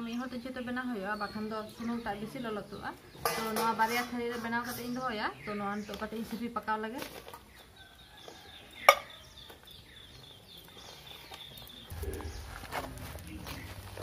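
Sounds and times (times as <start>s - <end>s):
low rumble: 11.9s - 14.0s.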